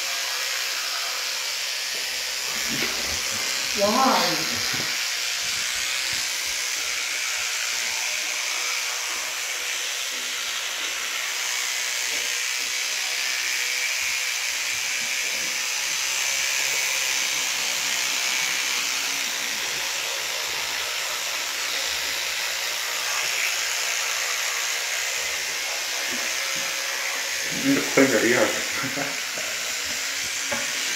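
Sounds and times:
electric toothbrush buzzing: 0.0 - 30.9.

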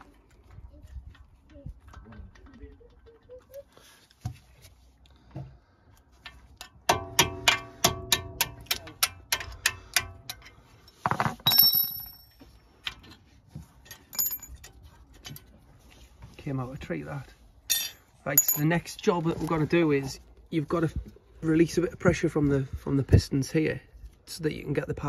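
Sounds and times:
ringing metal clinks: 11.4 - 12.4, 14.1 - 14.6, 17.7 - 18.7.

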